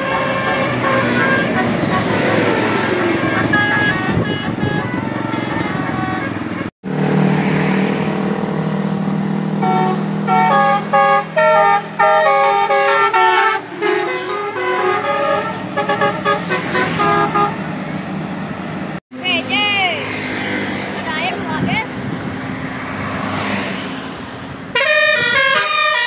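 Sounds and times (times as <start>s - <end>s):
musical bus horn tune: 0.0s - 6.7s, 9.6s - 17.7s, 24.7s - 26.0s.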